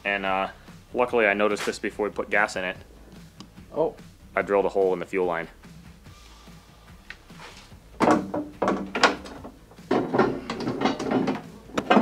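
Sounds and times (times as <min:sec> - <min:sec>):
metal engine clunking against hull: 0:08.0 - 0:12.0.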